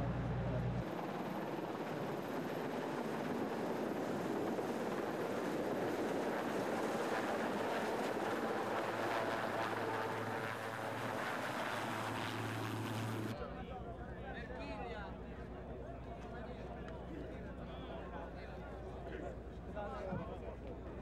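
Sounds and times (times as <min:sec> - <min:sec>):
helicopter rotor and engine: 0:00.6 - 0:13.4.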